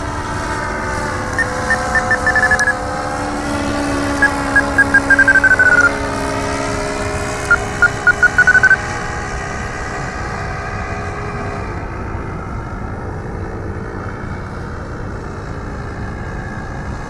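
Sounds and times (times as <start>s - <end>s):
propeller aircraft engine droning: 0.0s - 17.0s
short high beeps: 1.4s - 2.8s, 4.2s - 6.0s, 7.5s - 8.8s.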